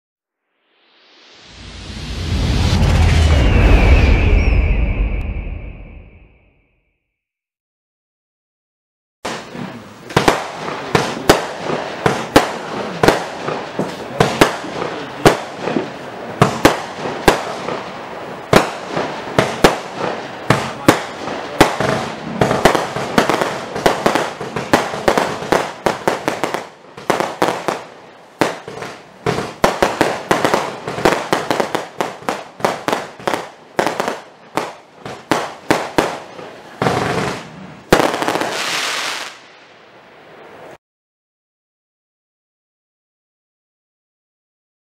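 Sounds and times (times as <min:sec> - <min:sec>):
firework cake shots and bursts: 0:09.2 - 0:39.4.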